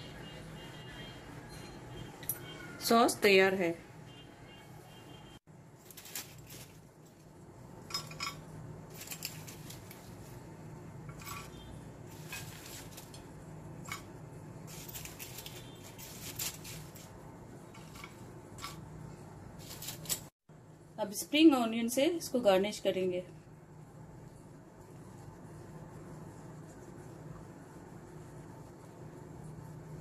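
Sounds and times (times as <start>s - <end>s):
tongs clinking against glass dish: 7.9s - 8.5s.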